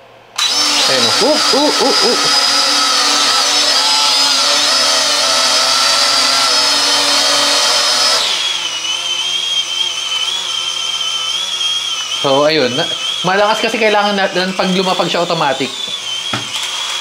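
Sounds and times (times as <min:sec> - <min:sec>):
drone propellers whining: 0:00.4 - 0:17.0.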